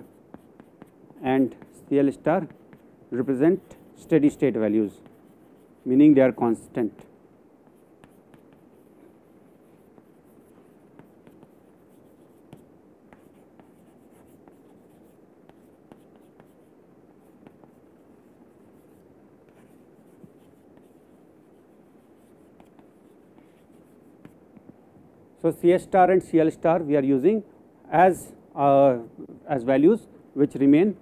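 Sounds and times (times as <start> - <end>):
chalk scratching on chalkboard: 0.0 - 6.2, 7.6 - 24.4
chalk tapping: 0.0 - 6.2, 6.8 - 24.8.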